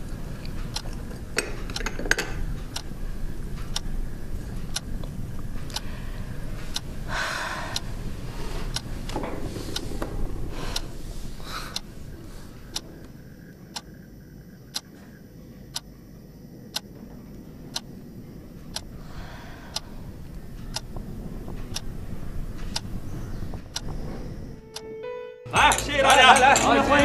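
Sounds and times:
low room hum: 0:00.0 - 0:27.0
clock ticking: 0:00.4 - 0:07.1, 0:08.7 - 0:09.1, 0:12.6 - 0:14.1, 0:14.7 - 0:14.9, 0:16.7 - 0:17.0, 0:17.6 - 0:18.0, 0:18.6 - 0:18.9, 0:20.5 - 0:22.0, 0:22.6 - 0:22.9.

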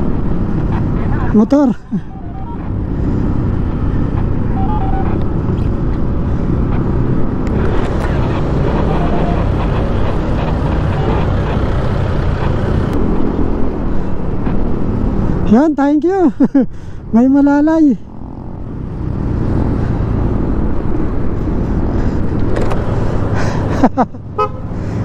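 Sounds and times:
road noise: 0:00.0 - 0:25.0
scooter engine: 0:07.5 - 0:13.0.

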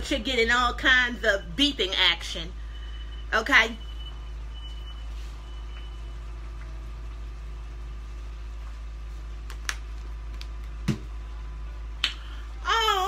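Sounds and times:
low kitchen background: 0:00.0 - 0:13.0
smoke detector beep: 0:01.3 - 0:06.3.

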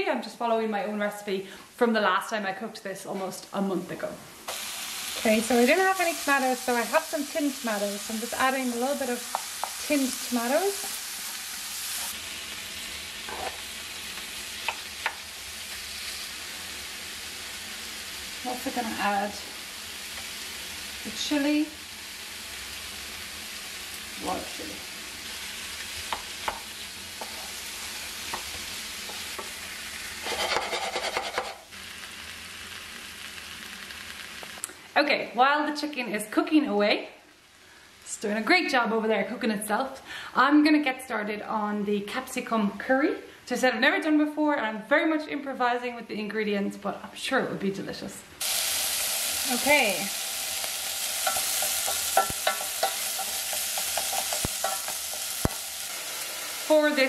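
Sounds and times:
curry sizzling in a frying pan: 0:03.4 - 0:34.8, 0:35.6 - 0:39.2, 0:48.4 - 0:57.0
wooden spoon stirring and scraping: 0:13.3 - 0:13.7, 0:27.2 - 0:27.7, 0:30.2 - 0:31.7, 0:51.2 - 0:55.3
spoon knocking against pan: 0:51.3 - 0:55.2.

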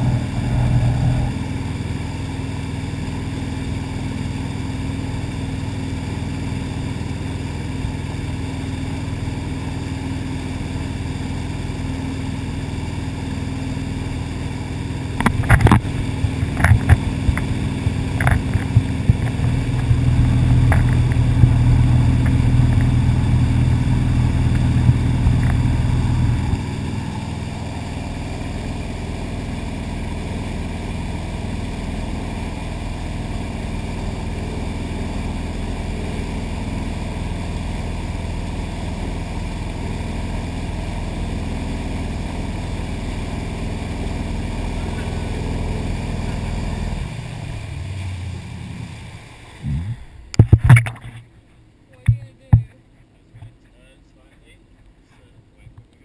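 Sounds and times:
churning boat wake: 0:00.0 - 0:51.2
boat engine running: 0:00.0 - 0:54.6.

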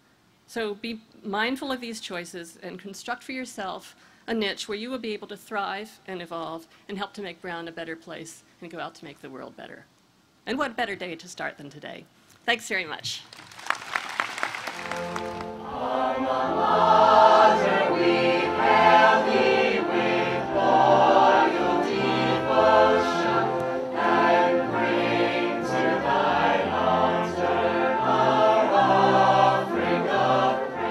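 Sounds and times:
a cappella group singing: 0:15.5 - 0:30.9.

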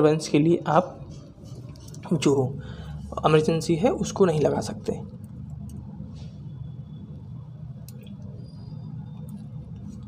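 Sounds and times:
low hum of room noise: 0:00.0 - 0:10.0
computer mouse clicks: 0:07.8 - 0:08.3.

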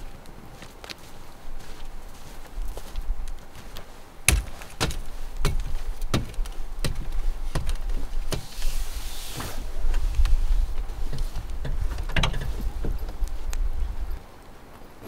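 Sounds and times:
tent fabric rustling: 0:00.0 - 0:14.7
boots knocking on ladder rungs: 0:04.3 - 0:08.5.

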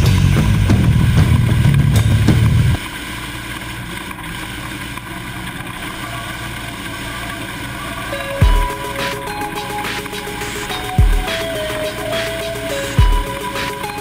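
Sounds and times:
vehicle engine drone: 0:00.0 - 0:14.0.

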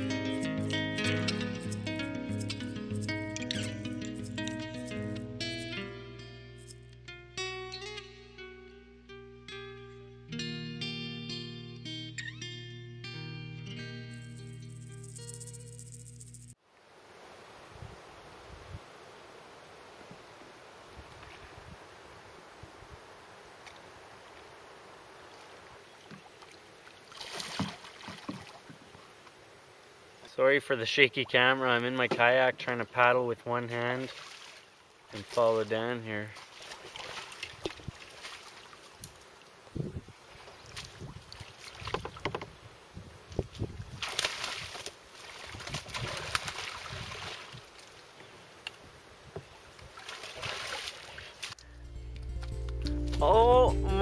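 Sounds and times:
paddle splashing in water: 0:26.0 - 0:28.9, 0:34.1 - 0:35.4, 0:36.3 - 0:39.0, 0:40.3 - 0:42.5, 0:44.0 - 0:48.0, 0:49.4 - 0:51.6.

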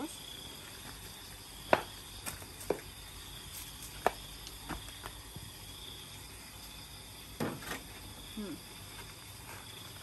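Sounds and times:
night insects trilling: 0:00.0 - 0:10.0.

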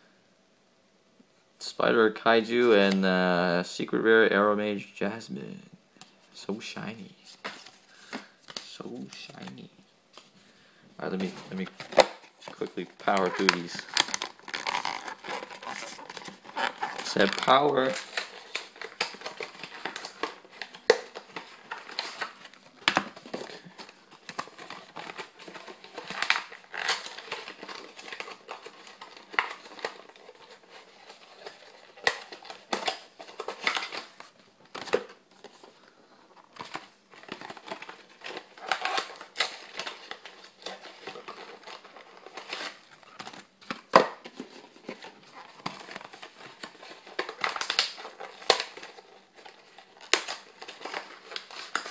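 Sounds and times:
trading cards rustling: 0:07.0 - 0:51.9
foil wrappers crinkling: 0:11.0 - 0:51.9.

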